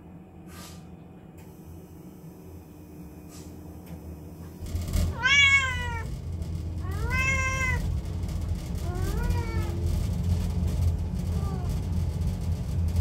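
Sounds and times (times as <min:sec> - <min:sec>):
gas boiler humming: 0:00.0 - 0:13.0
cat meowing: 0:05.1 - 0:06.1, 0:06.8 - 0:07.8, 0:08.8 - 0:09.8.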